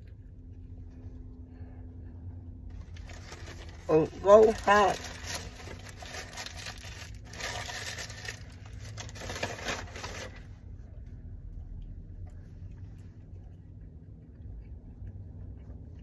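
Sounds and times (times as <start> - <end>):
paper bag crinkling: 2.7 - 10.5.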